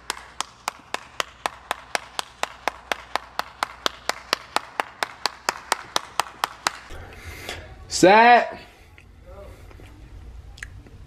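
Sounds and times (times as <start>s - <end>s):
hands clapping steadily: 0.0s - 7.0s.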